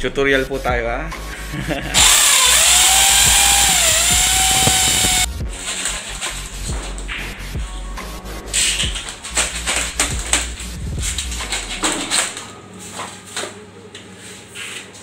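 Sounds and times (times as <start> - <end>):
low hum: 2.0 - 12.7.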